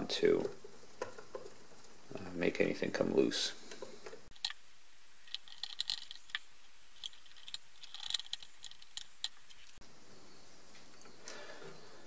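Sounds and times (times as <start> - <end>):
plastic parts clicking: 5.2 - 9.8.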